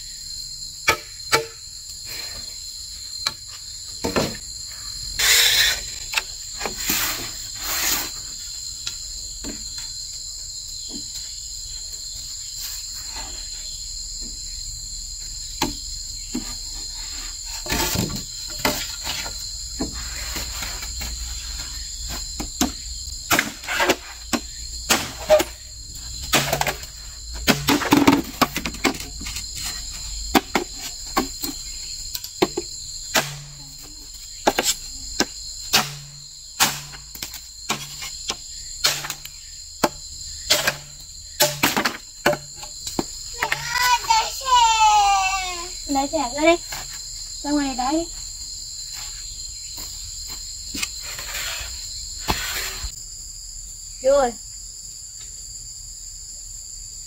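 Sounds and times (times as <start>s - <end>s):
insects droning: 0.0s - 57.0s
machete striking bamboo: 0.9s - 1.6s, 22.6s - 25.6s, 26.3s - 29.0s, 32.4s - 33.6s, 35.7s - 38.1s, 38.8s - 42.7s.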